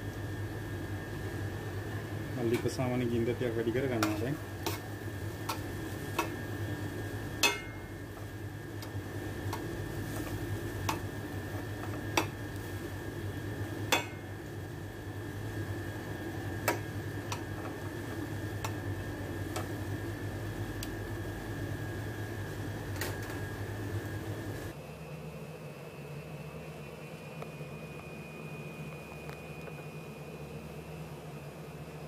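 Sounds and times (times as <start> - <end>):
steady low hum: 0.0 - 32.0
metal tongs clinking on frying pan: 7.4 - 7.8.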